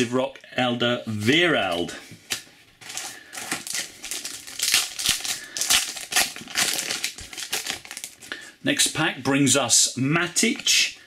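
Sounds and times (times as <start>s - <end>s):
card pack wrapper tearing: 2.8s - 8.2s
wrapper crinkling: 2.8s - 8.3s.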